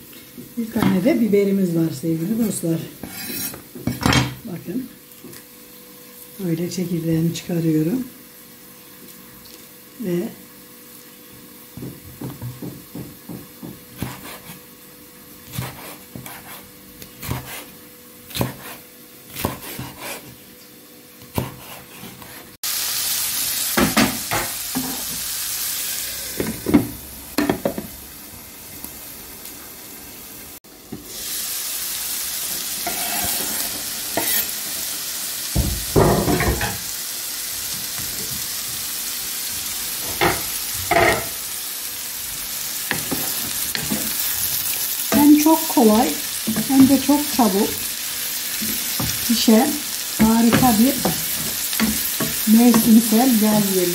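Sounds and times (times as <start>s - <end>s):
vegetables sizzling in a frying pan: 0.0s - 53.9s
knife knocking on cutting board: 11.8s - 13.8s.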